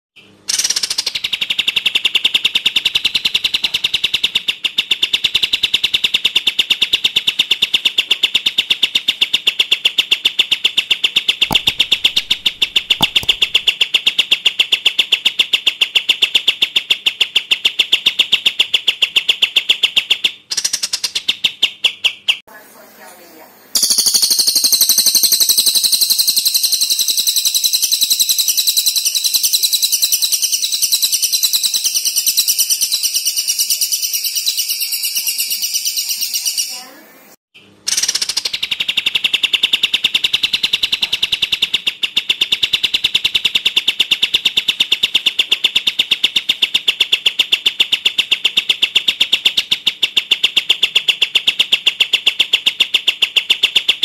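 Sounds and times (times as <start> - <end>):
bird rattling trill: 0.5 - 14.5, 23.8 - 36.9
higher harsh bird trill: 26.0 - 37.0.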